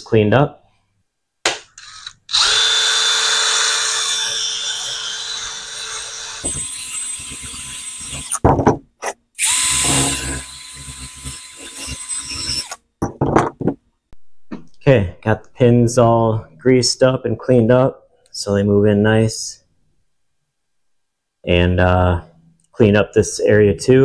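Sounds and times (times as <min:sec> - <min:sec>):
power drill with wire wheel whining: 0:01.8 - 0:08.4, 0:09.4 - 0:12.8
knocks: 0:08.4 - 0:08.9, 0:13.0 - 0:13.8.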